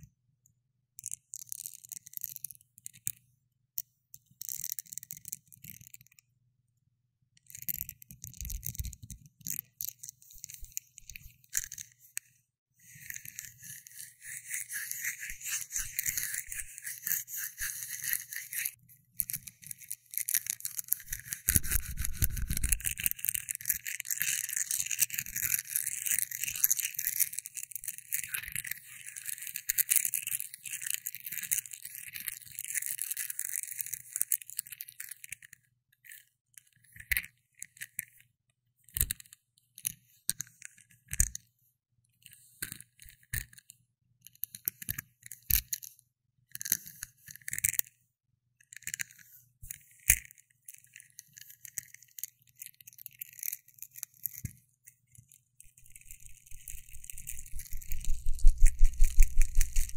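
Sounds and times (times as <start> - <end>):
scratchy crackling rustling: 55.7 - 59.9.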